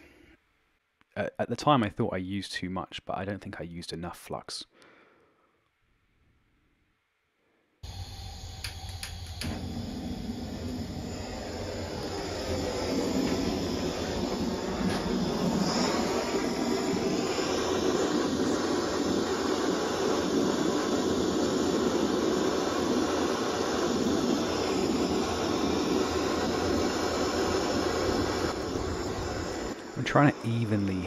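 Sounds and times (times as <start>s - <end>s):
blowtorch flame rushing: 7.8s - 31.0s.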